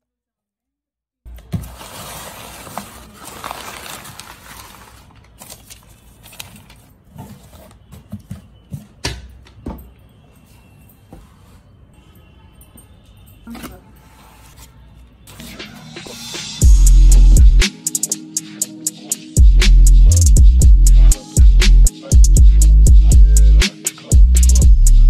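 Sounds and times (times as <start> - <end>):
packing paper rustling and crinkling: 1.3 - 8.4
cardboard boxes knocking and scraping: 7.1 - 9.0.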